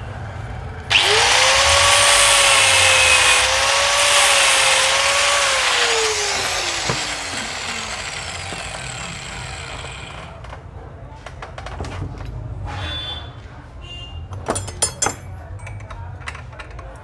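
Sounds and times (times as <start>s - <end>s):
angle grinder motor whine: 0.9s - 10.3s
grinder disc cutting metal: 0.9s - 10.4s.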